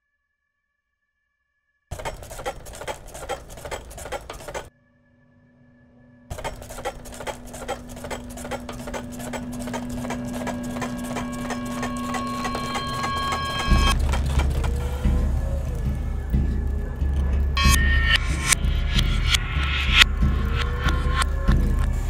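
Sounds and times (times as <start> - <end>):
steady low drone: 6.0 - 22.0
rapid crackle of clicks: 6.3 - 17.6
high steady tones: 6.3 - 22.0.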